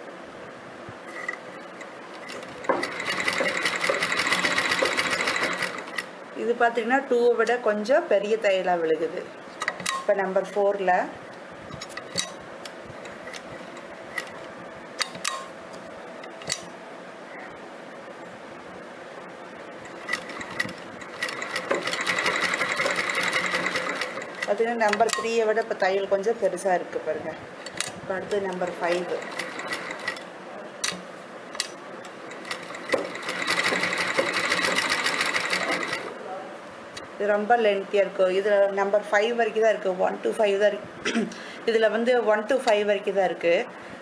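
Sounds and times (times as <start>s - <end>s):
sewing machine clicks and taps: 2.2s - 6.1s
sewing machine clicks and ticking: 2.3s - 6.1s, 20.0s - 25.2s, 28.5s - 30.2s, 32.3s - 36.0s
sewing machine stitching: 2.3s - 6.1s, 19.9s - 25.1s, 28.5s - 30.2s, 32.3s - 36.1s.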